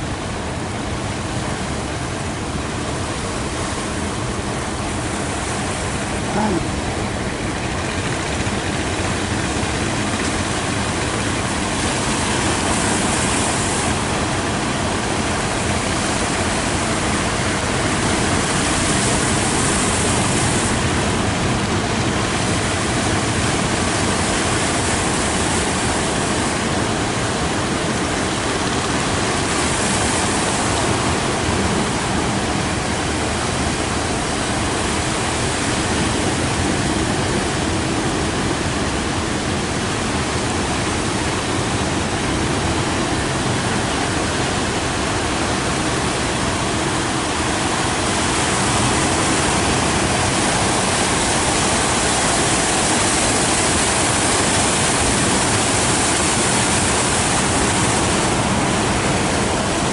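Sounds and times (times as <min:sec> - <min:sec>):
waves breaking and churning: 0:00.0 - 0:59.9.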